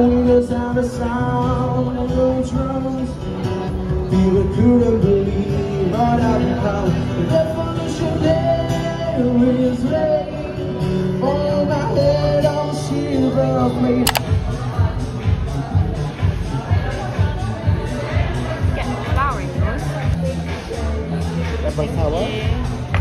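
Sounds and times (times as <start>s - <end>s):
acoustic guitar: 0.0s - 14.0s.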